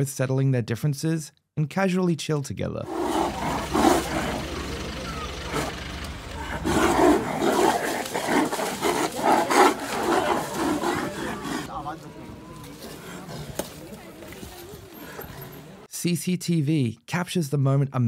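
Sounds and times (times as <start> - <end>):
tigers snarling and growling: 2.8 - 15.9.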